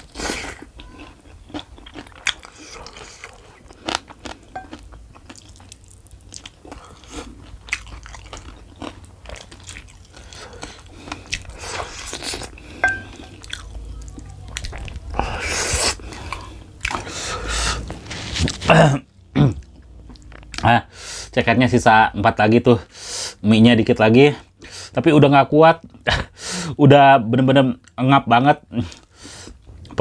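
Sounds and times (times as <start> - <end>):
chewing and crunching fried chicken: 0.0 - 21.2, 28.7 - 30.0.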